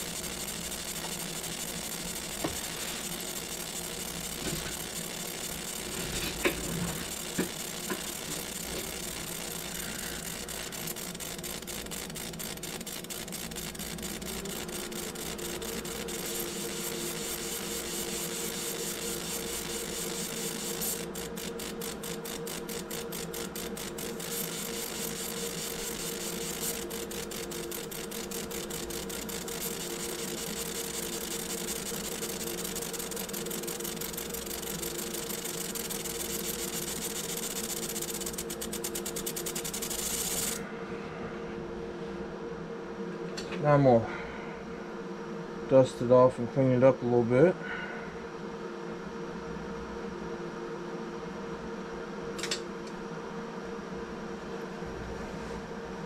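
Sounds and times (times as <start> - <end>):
fast buzzing flutter: 0.0 - 40.7
laser engraver whirring: 0.0 - 40.8
steady hum: 0.0 - 56.0.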